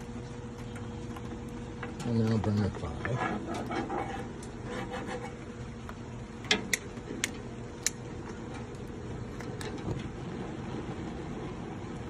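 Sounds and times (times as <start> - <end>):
gas burners hissing: 0.0 - 12.0
lighter sparking clicks: 6.7 - 8.0.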